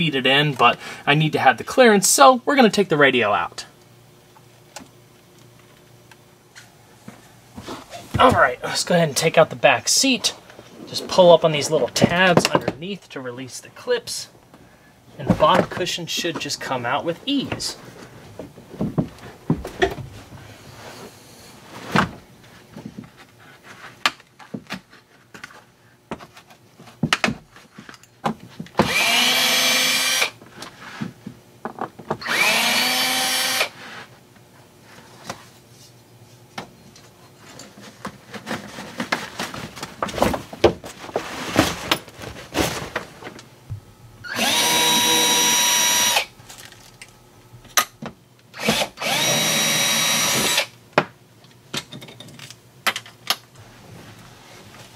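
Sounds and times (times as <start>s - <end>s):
cordless drill whining: 28.8s - 30.3s, 32.2s - 33.8s, 44.2s - 46.3s, 48.6s - 50.7s.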